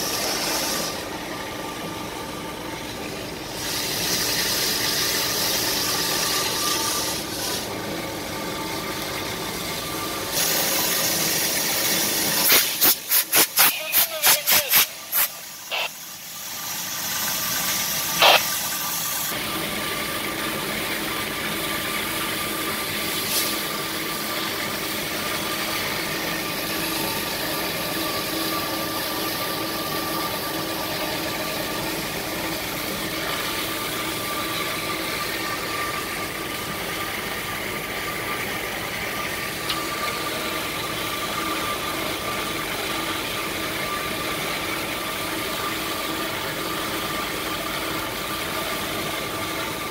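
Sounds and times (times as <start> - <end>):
band saw cutting steel pipe: 0.0 - 1.1, 3.5 - 7.8
high hiss: 18.0 - 18.6.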